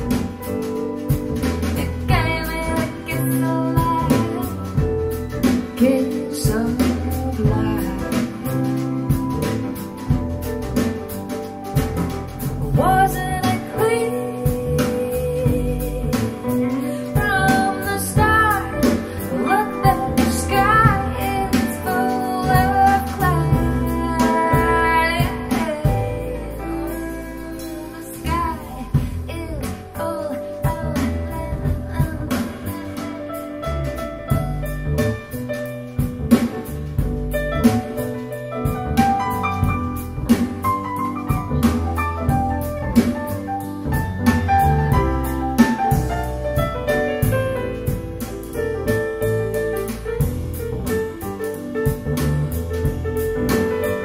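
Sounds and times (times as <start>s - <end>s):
band playing guitar bass percussion: 0.0s - 54.0s
woman singing with vibrato: 1.8s - 4.9s, 5.8s - 8.8s, 12.6s - 33.6s.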